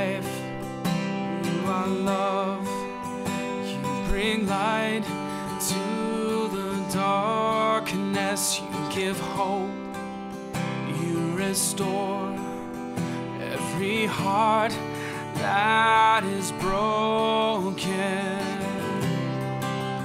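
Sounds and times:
strummed acoustic guitar: 0.0 - 20.0.

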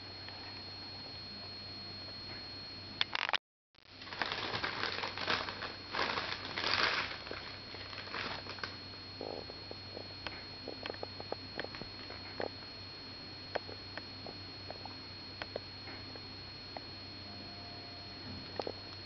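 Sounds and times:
guinea pigs crunching leaves: 3.8 - 8.8.

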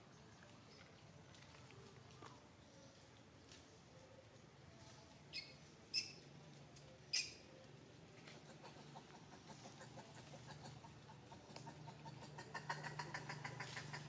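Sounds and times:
high chirp-like animal calls: 5.3 - 6.3, 7.0 - 7.6
faint rapid chattering: 8.2 - 14.0.

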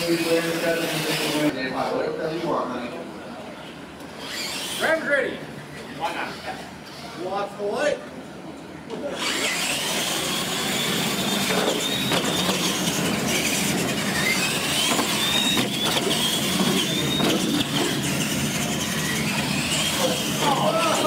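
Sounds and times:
toy truck electric motors whining: 0.0 - 1.5, 4.0 - 5.1, 9.0 - 21.0.

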